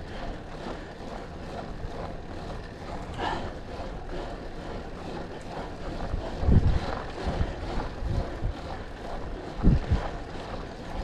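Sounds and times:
bicycle road noise: 0:00.0 - 0:11.0
wind rumble and hiss: 0:06.0 - 0:10.2.

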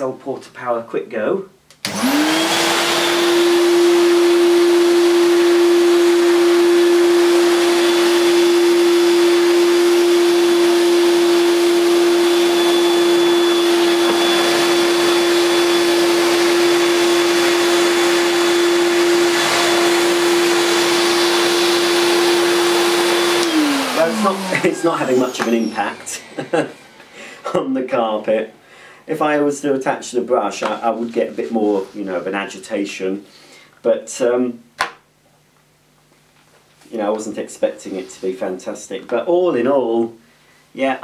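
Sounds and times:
vacuum cleaner motor whine: 0:01.8 - 0:28.6.

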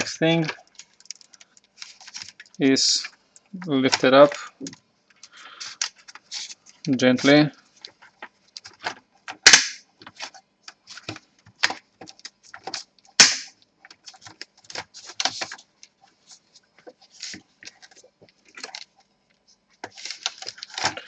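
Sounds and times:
sharp plastic snaps: 0:08.5 - 0:10.2, 0:11.0 - 0:15.5.

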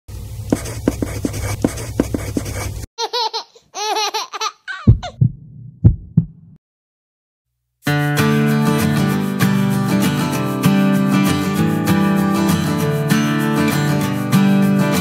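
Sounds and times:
high-pitched giggling laugh: 0:03.0 - 0:05.0
low thumps: 0:04.9 - 0:06.6.

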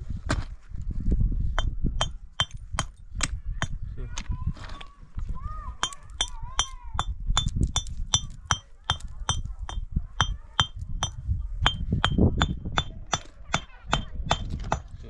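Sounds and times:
hammer striking metal: 0:01.6 - 0:03.8, 0:05.8 - 0:14.9.

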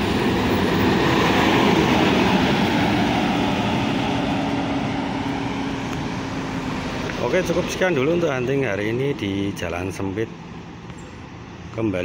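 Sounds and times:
bus engine and tyres passing: 0:00.0 - 0:12.0.

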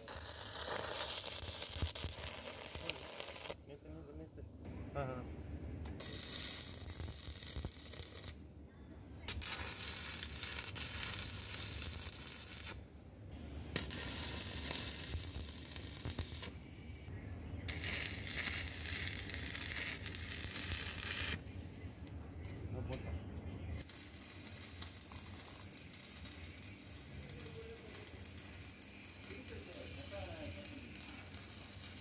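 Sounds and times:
arc welding crackle: 0:00.0 - 0:03.8, 0:05.9 - 0:08.4, 0:09.3 - 0:12.8, 0:13.7 - 0:17.1, 0:17.7 - 0:22.2, 0:23.8 - 0:32.0.

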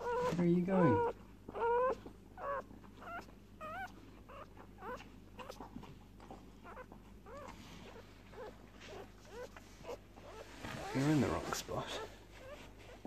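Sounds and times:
puppies squeaking and whimpering: 0:00.0 - 0:13.0.

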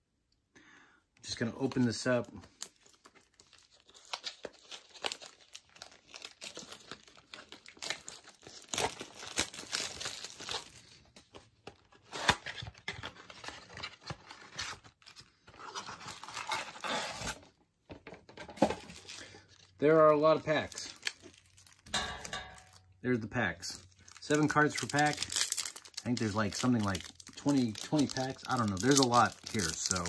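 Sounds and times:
cardboard box wrapper tearing: 0:02.9 - 0:10.9, 0:12.0 - 0:17.5, 0:24.2 - 0:30.0.

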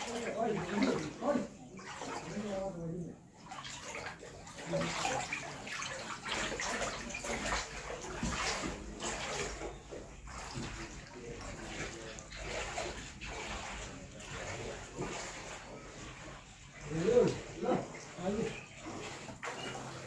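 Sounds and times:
floodwater sloshing and splashing: 0:00.0 - 0:20.0.

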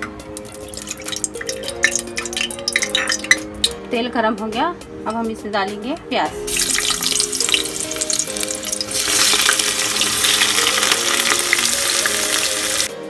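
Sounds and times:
onions sizzling in hot oil: 0:06.5 - 0:12.9.

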